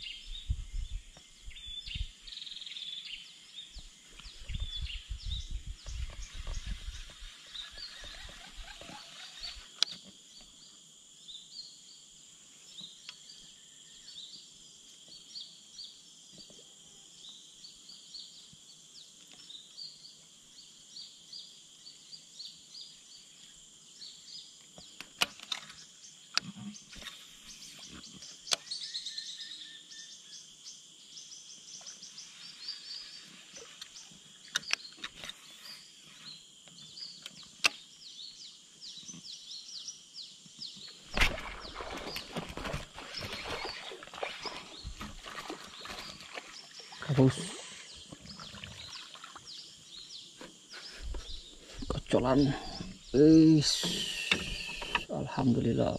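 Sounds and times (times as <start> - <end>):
high insect hum: 0.0 - 55.9
bird chirps: 24.0 - 55.9.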